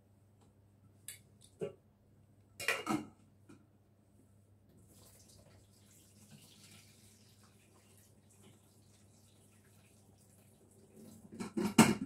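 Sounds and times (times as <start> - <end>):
water poured into sink: 4.8 - 11.6.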